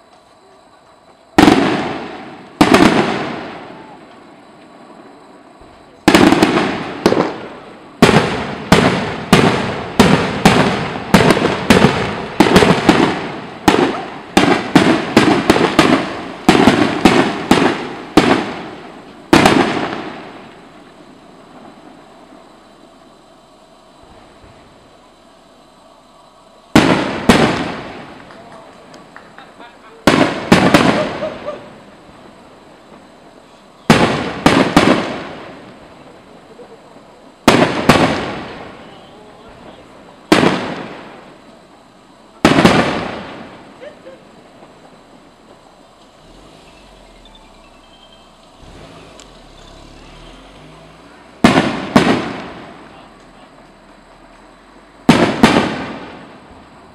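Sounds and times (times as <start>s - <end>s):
firework shells bursting: 0.0s - 50.3s, 51.2s - 56.8s.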